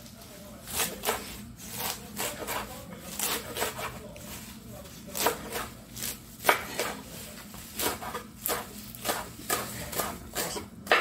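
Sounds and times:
knife chopping on wooden board: 0:00.7 - 0:04.0, 0:05.1 - 0:07.0, 0:07.8 - 0:11.0.

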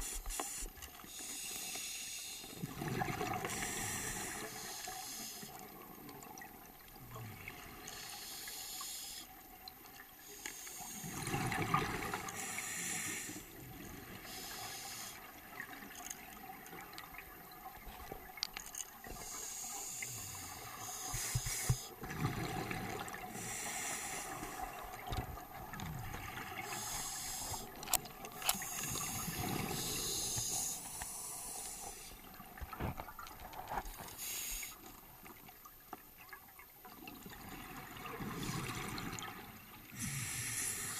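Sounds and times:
regulator hissing inhalations: 0:00.0 - 0:02.6, 0:03.5 - 0:05.6, 0:07.9 - 0:09.3, 0:10.2 - 0:11.2, 0:12.2 - 0:13.5, 0:14.2 - 0:15.4, 0:19.1 - 0:22.0, 0:23.3 - 0:24.7, 0:26.6 - 0:27.8, 0:28.4 - 0:32.2, 0:34.1 - 0:34.9, 0:39.9 - 0:40.9.

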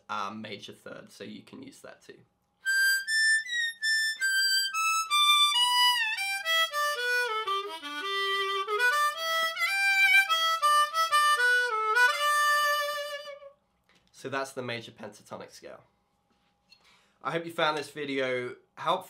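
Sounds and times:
harmonica playing scale: 0:02.6 - 0:13.6.

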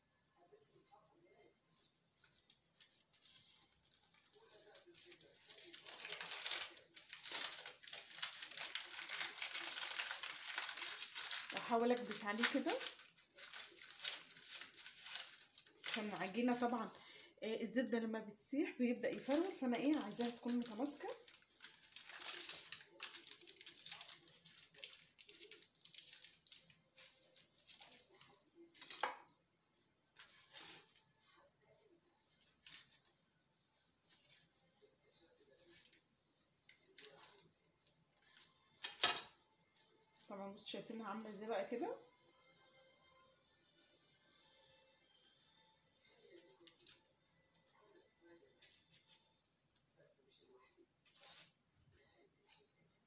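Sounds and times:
baking paper crinkling: 0:00.7 - 0:17.0, 0:18.8 - 0:29.3, 0:30.1 - 0:31.0, 0:32.2 - 0:33.2, 0:34.0 - 0:36.1, 0:36.7 - 0:39.2, 0:51.0 - 0:51.6.

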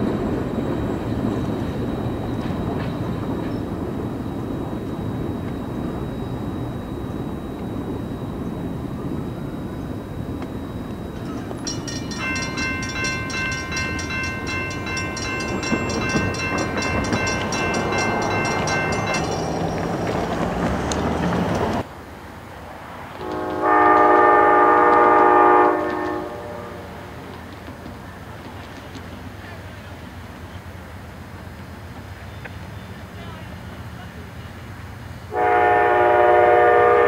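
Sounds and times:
low train rumble: 0:00.0 - 0:37.0
locomotive horn chord: 0:23.2 - 0:27.2, 0:35.3 - 0:37.0
train horn blast: 0:23.2 - 0:27.3, 0:35.3 - 0:37.0.

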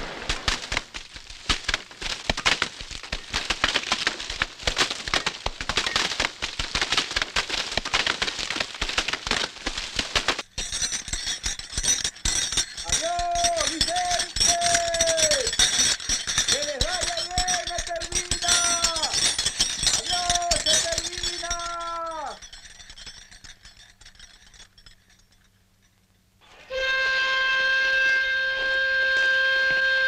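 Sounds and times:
fire crackling and popping: 0:00.0 - 0:25.2
person calling out: 0:21.4 - 0:22.4.

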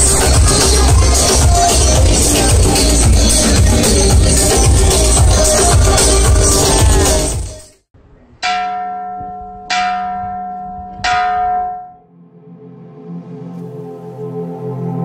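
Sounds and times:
dance music: 0:00.0 - 0:07.7
brass bell ringing: 0:08.4 - 0:12.0
soft ambient music: 0:12.1 - 0:15.0.

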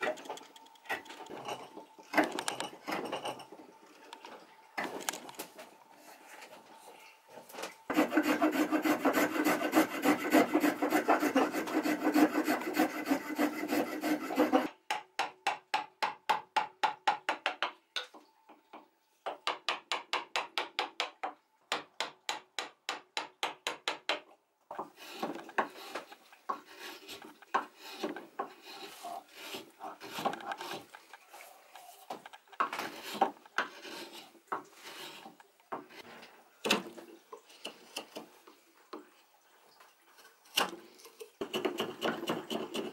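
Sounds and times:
spokeshave shaving wood: 0:07.9 - 0:14.7, 0:24.9 - 0:36.0, 0:40.6 - 0:42.9
chisel paring wood: 0:07.9 - 0:17.7, 0:19.4 - 0:24.3, 0:41.4 - 0:42.9.

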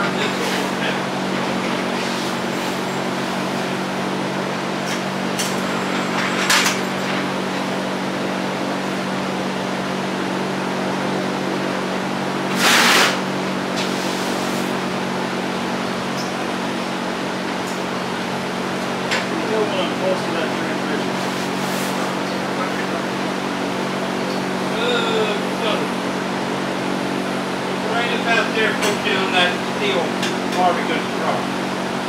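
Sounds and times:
mechanical hum: 0:00.0 - 0:32.0
short bursts of hissing: 0:12.5 - 0:13.2.

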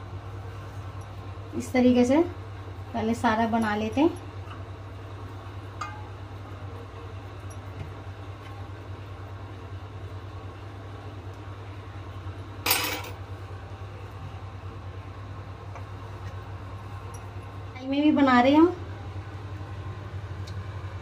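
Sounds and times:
steady low hum: 0:00.0 - 0:21.0
kitchenware clattering: 0:12.7 - 0:13.2.

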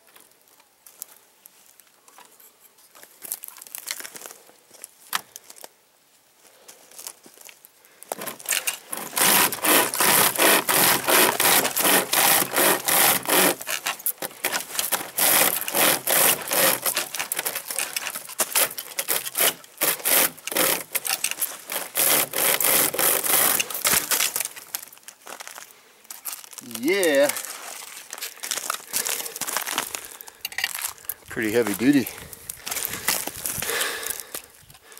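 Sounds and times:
saw chain rasping through log: 0:08.2 - 0:24.5.

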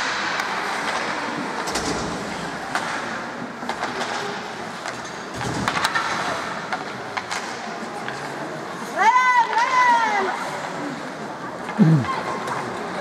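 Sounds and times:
hockey sticks and puck clacking: 0:00.0 - 0:08.4, 0:09.5 - 0:09.8.

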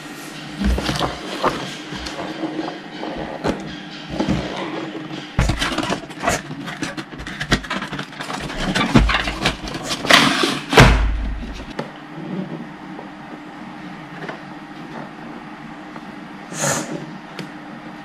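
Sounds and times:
cardboard and plastic case rustling: 0:05.4 - 0:10.3.

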